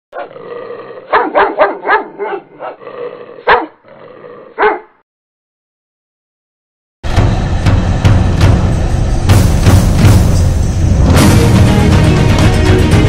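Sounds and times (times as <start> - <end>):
dog barking: 0.2 - 0.4, 1.1 - 2.8, 3.4 - 3.8, 4.5 - 5.0.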